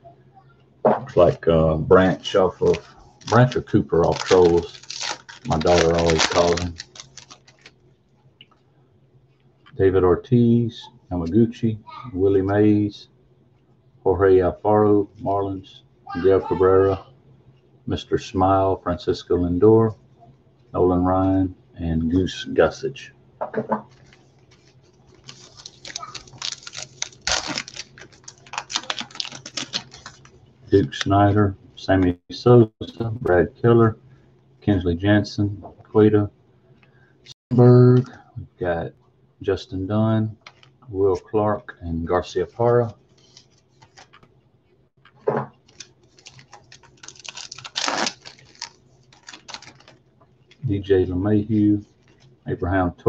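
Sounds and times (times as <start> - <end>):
trading cards clicking and rustling: 2.0 - 7.7, 23.9 - 31.1, 40.4 - 40.8, 45.0 - 50.6
plastic wrappers crinkling and tearing: 2.0 - 7.8, 23.9 - 31.1, 40.4 - 40.8, 43.0 - 44.2, 45.1 - 50.6, 51.9 - 52.4.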